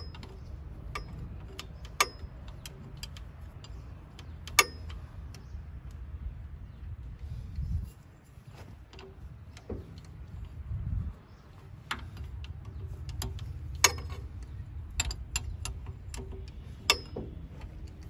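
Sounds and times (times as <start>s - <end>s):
spanner clicking on metal: 0.0s - 5.5s, 11.7s - 18.0s.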